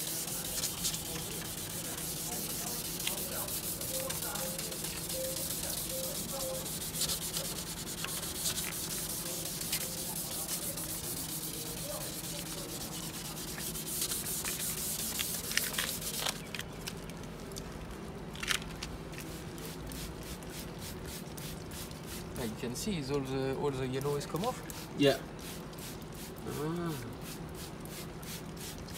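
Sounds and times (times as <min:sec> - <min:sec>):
faint rubbing: 0:00.0 - 0:16.4
sandpaper rasping on plastic: 0:00.0 - 0:16.4.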